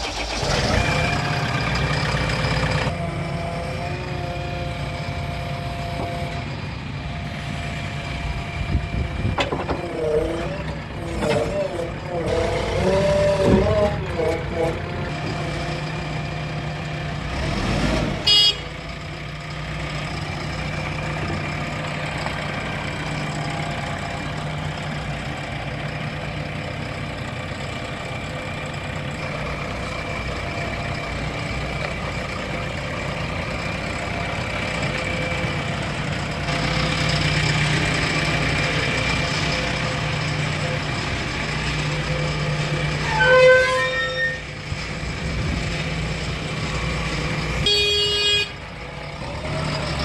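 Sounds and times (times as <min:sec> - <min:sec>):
diesel engine running: 0:00.0 - 0:50.0
short horn toot: 0:43.0 - 0:44.4.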